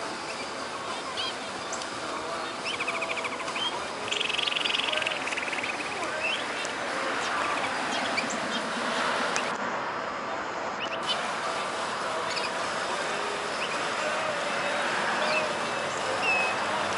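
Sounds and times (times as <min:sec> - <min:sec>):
canary singing: 0:00.2 - 0:09.5, 0:10.8 - 0:16.9.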